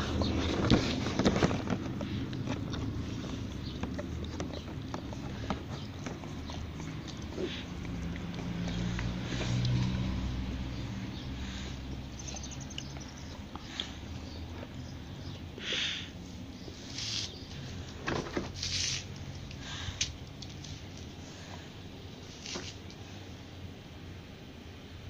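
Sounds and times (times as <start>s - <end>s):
dog sniffing and licking: 0.2s - 15.6s.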